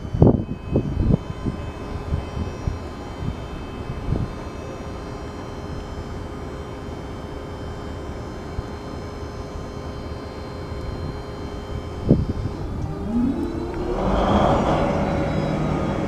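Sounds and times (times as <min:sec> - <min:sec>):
high tonal whine: 0:00.0 - 0:16.0
diesel locomotive engine idling: 0:11.4 - 0:16.0.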